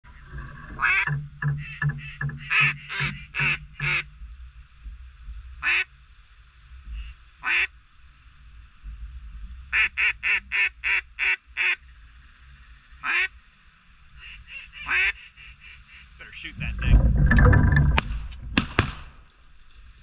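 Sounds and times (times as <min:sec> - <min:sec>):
duck quacking: 0:00.8 - 0:04.1, 0:07.4 - 0:07.7, 0:13.0 - 0:13.3, 0:14.2 - 0:16.7.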